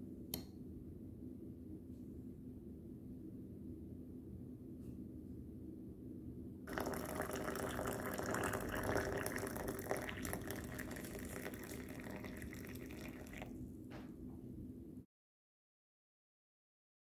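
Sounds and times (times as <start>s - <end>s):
water pouring into a mug: 6.7s - 13.6s.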